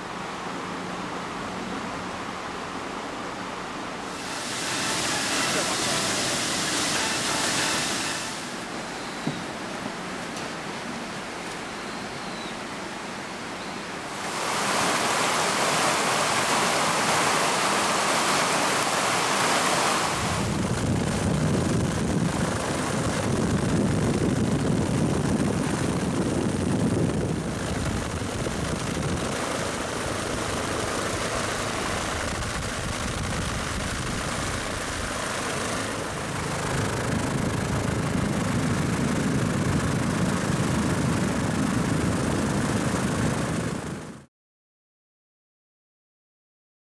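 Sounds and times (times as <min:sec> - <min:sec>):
outdoor rushing noise: 0:04.0 - 0:08.9.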